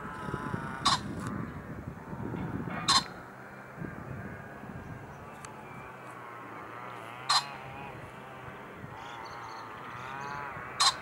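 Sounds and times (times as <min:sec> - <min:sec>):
pheasant crowing: 0:00.0 - 0:03.2, 0:06.4 - 0:11.0.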